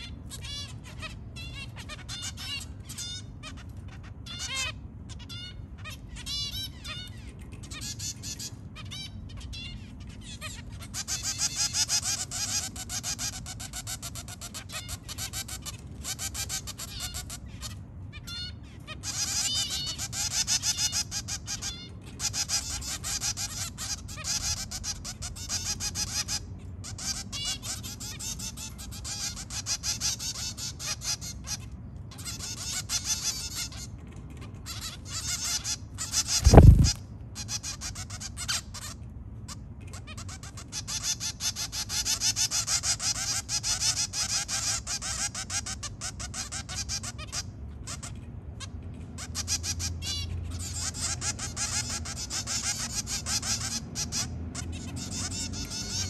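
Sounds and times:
finches beeping calls: 0:00.0 - 0:33.9, 0:34.7 - 0:39.0
fledglings begging calls: 0:00.0 - 0:48.3, 0:49.1 - 0:56.0
loud low thud: 0:36.4 - 0:37.0.

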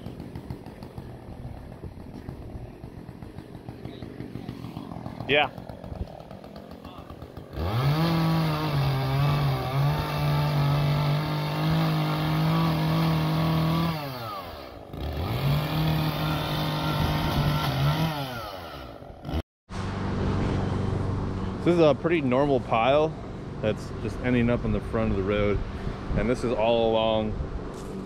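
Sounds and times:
chainsaw revving: 0:00.0 - 0:19.4.

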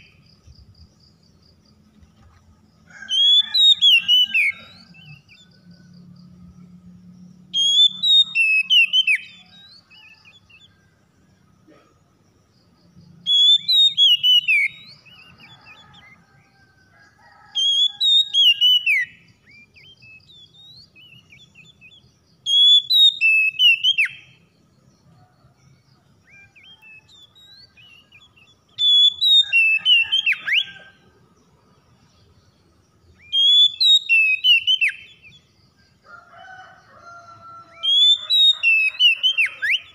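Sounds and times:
bird singing whistled phrases: 0:07.6 - 0:10.2, 0:13.3 - 0:15.8, 0:17.6 - 0:24.2, 0:26.4 - 0:30.8, 0:33.2 - 0:35.2, 0:37.8 - 0:39.9.

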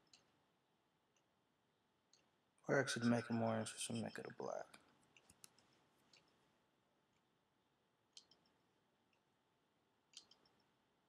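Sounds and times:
computer mouse clicks: 0:05.1 - 0:06.4, 0:08.1 - 0:08.6, 0:10.1 - 0:10.8.

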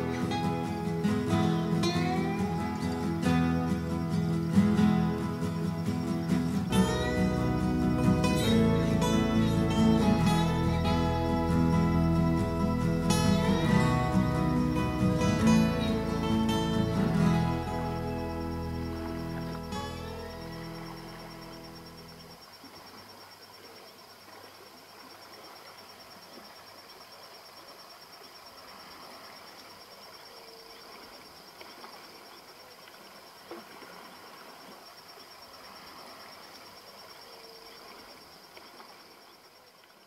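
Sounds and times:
insects trilling: 0:00.0 - 0:40.0.

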